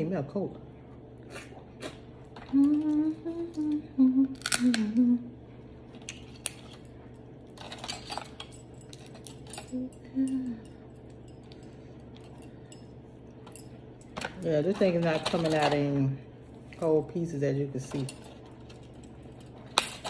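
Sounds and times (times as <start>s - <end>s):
short low hums: 0.8s - 5.9s
crab shells cracking: 4.4s - 4.9s.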